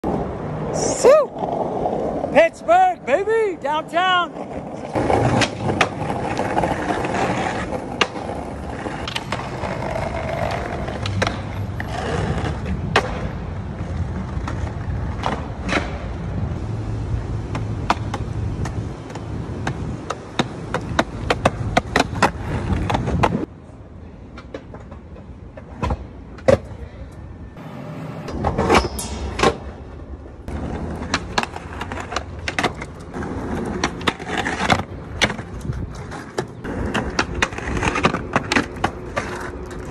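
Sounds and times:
skateboard trucks grinding ledges: 0.0 - 2.6, 4.3 - 23.5, 27.6 - 39.9
skateboard wheels rolling on concrete: 0.0 - 39.9
skateboard clacking: 4.2 - 16.2, 17.4 - 23.5, 28.3 - 39.9.

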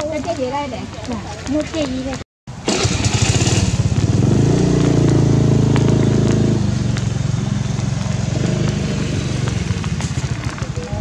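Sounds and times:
motor engine running: 2.7 - 11.0.

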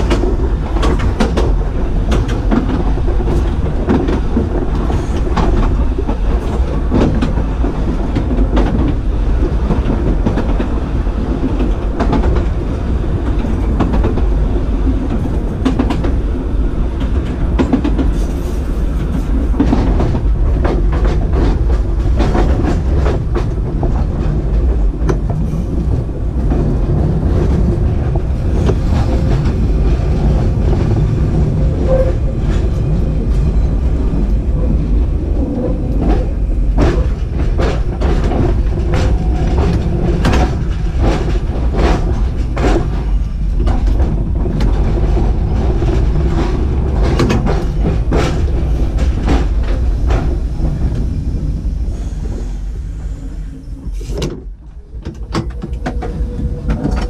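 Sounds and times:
tram rumbling: 0.0 - 57.0
wheels clicking over rails: 53.8 - 57.0.

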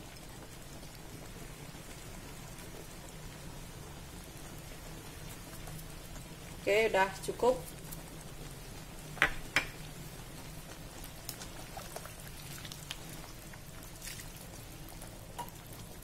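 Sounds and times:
liquid sloshing: 11.5 - 14.5.

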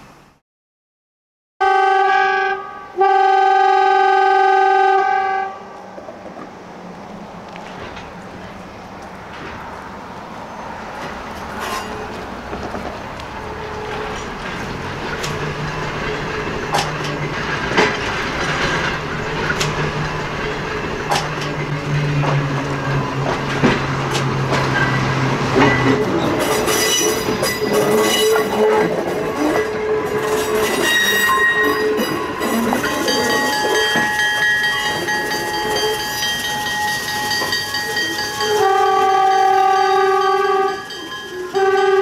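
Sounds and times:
locomotive low hum: 5.7 - 42.0
wheels clicking over rail joints: 7.4 - 42.0
wheels squealing: 10.4 - 42.0.

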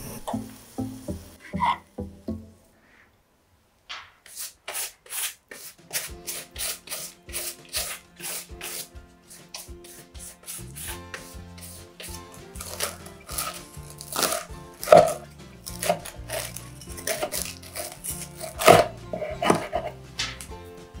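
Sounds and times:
pastry brush swishing over crust: 4.3 - 14.2.

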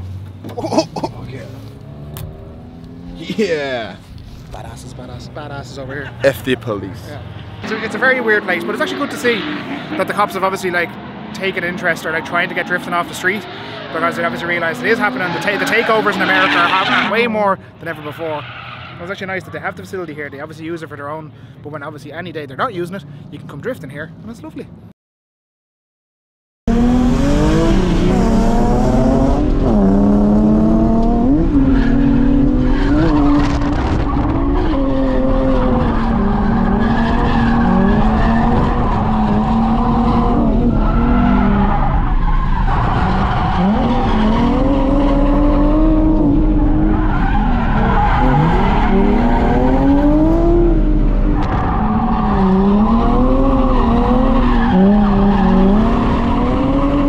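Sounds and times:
car engines revving: 0.0 - 24.7, 26.7 - 57.0
tyre squeal: 31.6 - 50.0.

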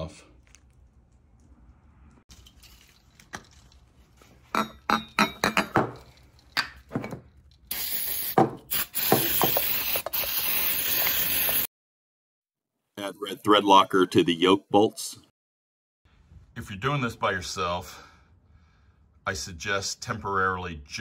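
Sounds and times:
aerosol spray hissing: 7.7 - 11.7.

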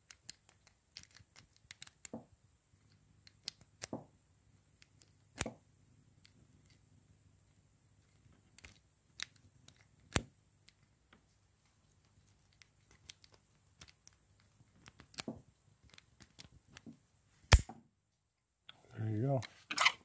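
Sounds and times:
metallic clicks of lock picking: 0.0 - 2.1.

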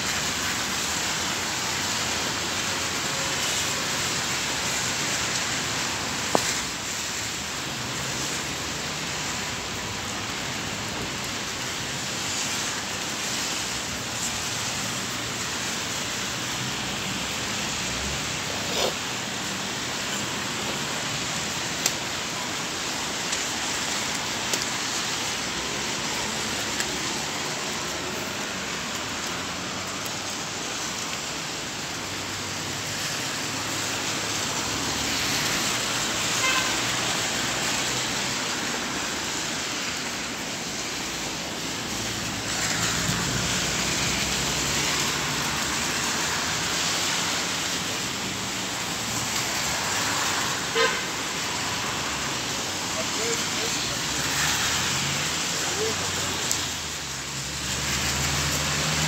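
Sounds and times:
tyres swishing on wet road: 0.0 - 59.0
car horn toot: 36.4 - 36.8, 50.7 - 51.0.

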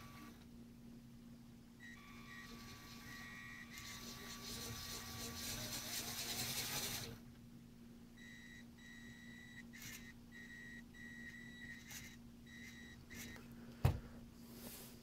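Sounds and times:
toy electric motor whirring: 2.0 - 7.2.

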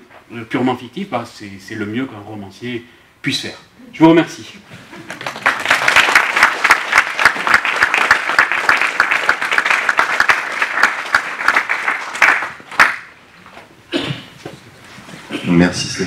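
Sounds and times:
audience applauding: 5.0 - 13.2.

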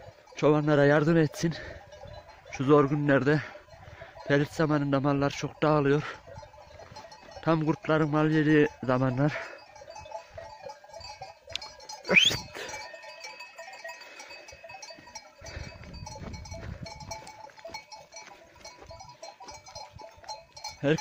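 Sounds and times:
goat bells clinking: 0.0 - 21.0
sharp rising whistle: 12.1 - 12.5.

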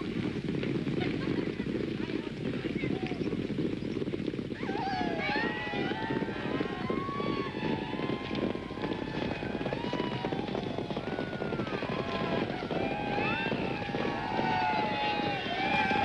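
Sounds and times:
horses galloping hooves: 0.0 - 16.0
people whooping and crying out: 4.6 - 16.0.

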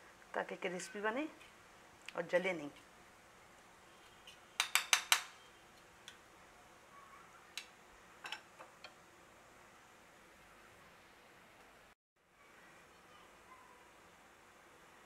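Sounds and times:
metal spoon tapping pan edge: 4.6 - 5.3.

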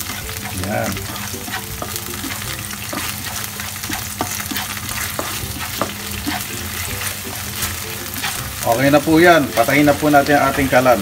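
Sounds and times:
sauce sizzling in a frying pan: 0.0 - 11.0.

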